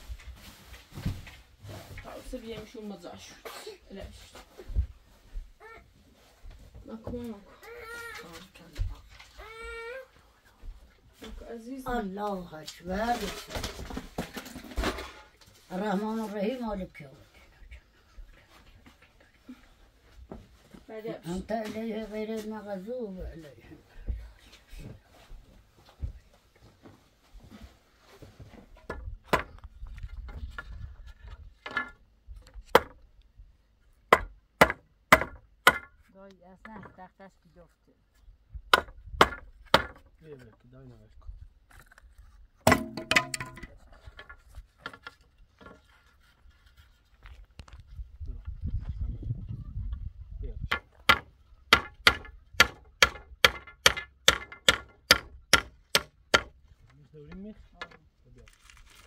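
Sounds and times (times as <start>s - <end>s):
sharp knocks on wood: 34.1s - 36.0s, 38.7s - 40.1s, 42.7s - 43.7s, 50.7s - 56.6s
handling noise: 42.6s - 45.9s.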